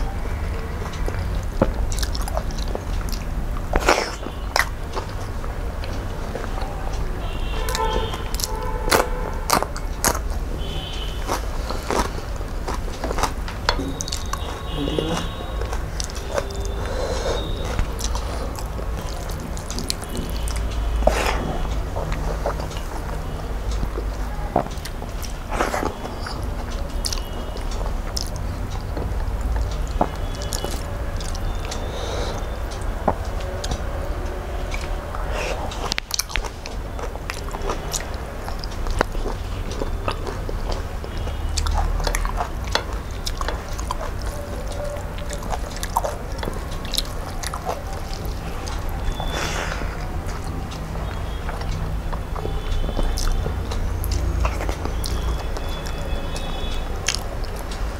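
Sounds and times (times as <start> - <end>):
chewing and biting: 0.0 - 57.9
wet squishing of fingers in rice: 7.3 - 57.9.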